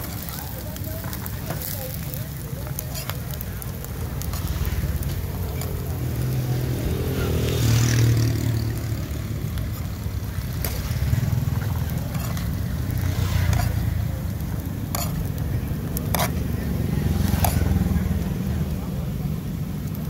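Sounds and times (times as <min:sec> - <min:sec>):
motorbikes passing: 0:00.0 - 0:20.0
metal spoon scraping metal pan: 0:12.1 - 0:12.6, 0:13.4 - 0:13.9, 0:14.9 - 0:15.3, 0:16.1 - 0:16.4, 0:17.3 - 0:17.7.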